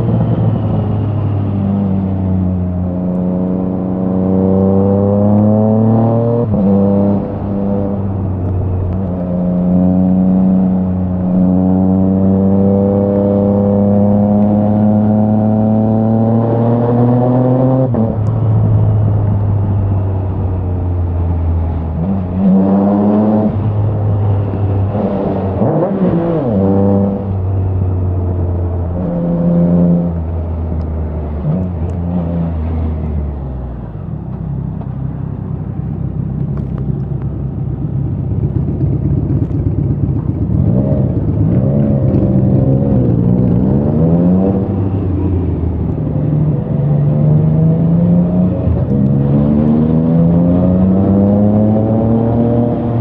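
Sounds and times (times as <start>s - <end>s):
motorcycle engine revving: 38.3s - 53.0s.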